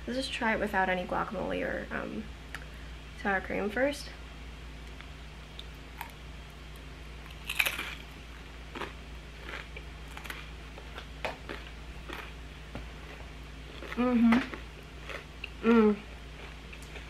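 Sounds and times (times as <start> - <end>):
person chewing crunchy crackers: 5.6 - 17.0.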